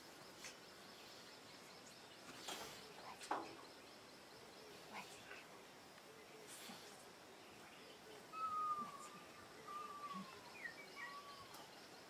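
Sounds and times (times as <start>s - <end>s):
faint outdoor hiss: 0.0s - 12.0s
animal whistled calls: 8.3s - 11.4s.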